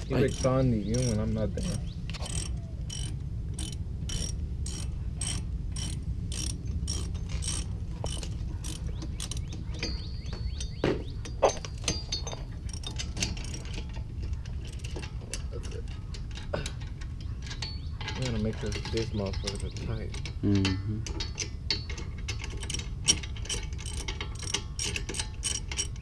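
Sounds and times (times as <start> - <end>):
sharp metal knocks: 0.0 - 26.0
ratchet wrench clicking: 0.2 - 9.5, 18.7 - 26.0.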